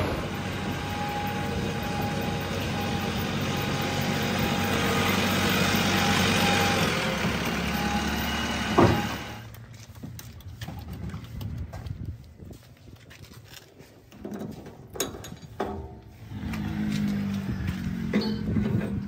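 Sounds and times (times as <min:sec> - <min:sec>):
steady whine: 0:00.0 - 0:09.6
diesel engine running: 0:00.0 - 0:11.7, 0:15.5 - 0:19.0.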